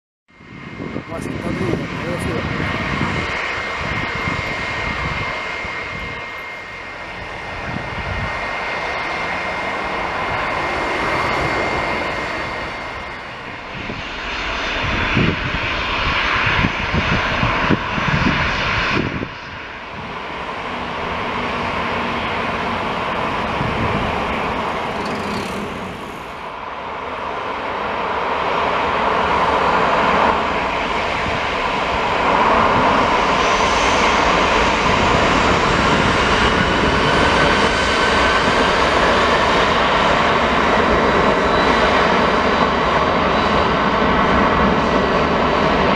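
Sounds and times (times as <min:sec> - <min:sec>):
jet engines whine and rumble: 0:00.3 - 0:45.9
thin high tone: 0:24.8 - 0:26.4.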